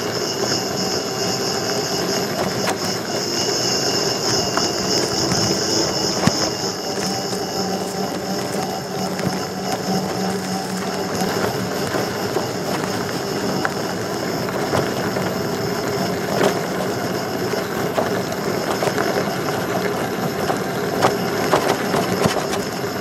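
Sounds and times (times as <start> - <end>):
electric motor whine: 0.0 - 23.0
tyres crunching on dirt: 0.1 - 23.0
clicks and knocks from bumps: 17.9 - 22.7.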